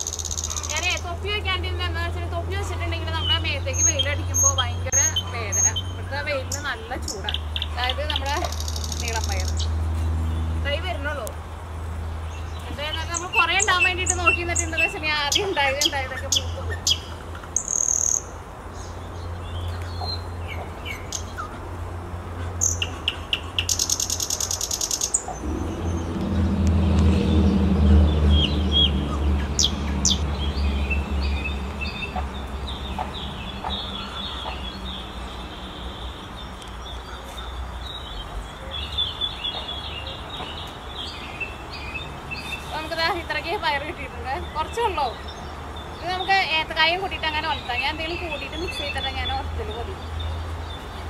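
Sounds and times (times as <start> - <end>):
small birds chirping: 0.0 - 51.0
low motor hum: 25.3 - 35.8.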